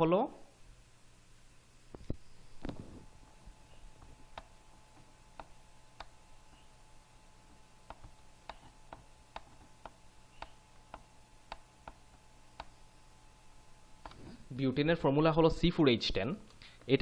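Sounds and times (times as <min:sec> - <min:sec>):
low steady hum: 0:00.0 - 0:17.0
faint irregular clicking: 0:04.0 - 0:06.7, 0:07.8 - 0:12.8.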